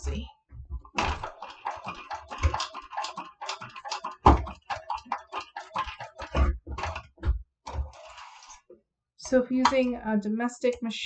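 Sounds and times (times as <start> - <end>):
sewing machine clicking and knocking: 0.8 - 8.2.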